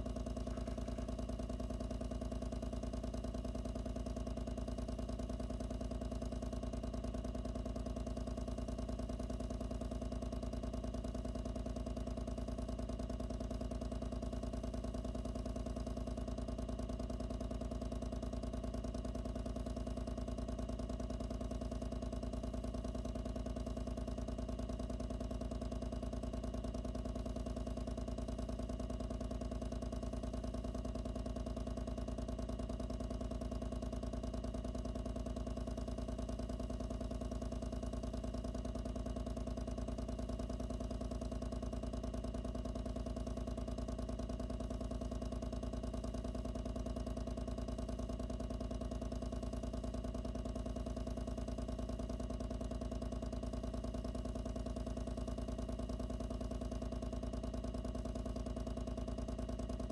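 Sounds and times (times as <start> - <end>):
pump running: 0.0 - 1.6.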